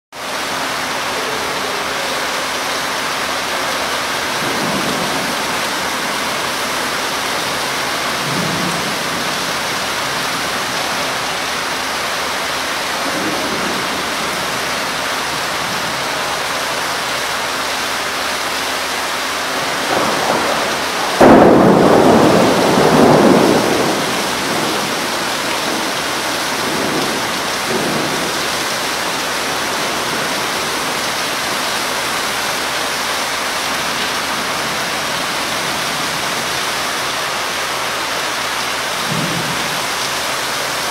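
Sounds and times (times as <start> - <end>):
heavy rain on leaves and paving: 0.1 - 40.9
faint low thunder rumbles: 3.6 - 11.3, 19.3 - 31.6
loud thunder clap: 4.3 - 11.2, 19.5 - 31.5, 39.0 - 40.0.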